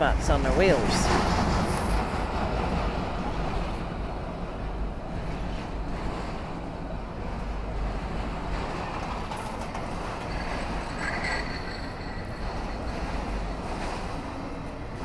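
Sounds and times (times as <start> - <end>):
freight train wheels rumbling: 0.0 - 15.0.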